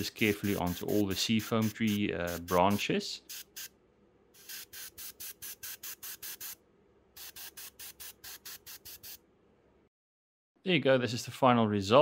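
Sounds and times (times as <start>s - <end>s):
airbrush spraying in rapid hisses: 0.0s - 3.7s, 4.4s - 6.6s, 7.2s - 9.2s.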